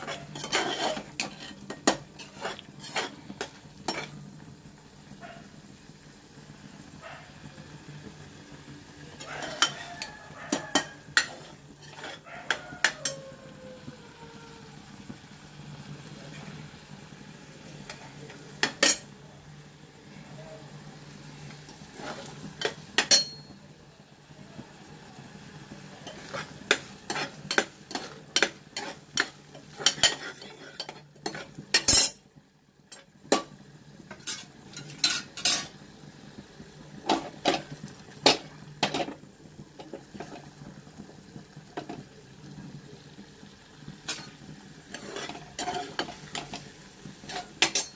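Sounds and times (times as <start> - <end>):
metal ladle scraping a pan: 0.0 - 4.2, 9.1 - 13.4, 21.6 - 23.5, 26.0 - 32.2, 34.1 - 35.8, 39.8 - 40.5, 44.0 - 47.9.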